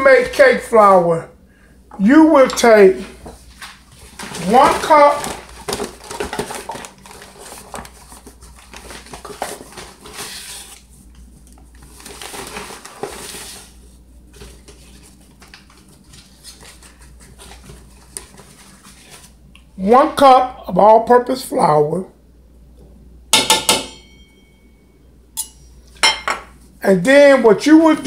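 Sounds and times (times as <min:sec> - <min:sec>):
rustling and scraping flour: 0:02.4 - 0:19.5.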